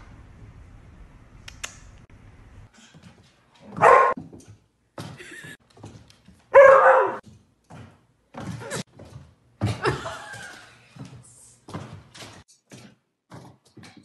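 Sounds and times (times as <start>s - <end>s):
dog barking: 3.7s - 4.2s, 6.5s - 7.2s.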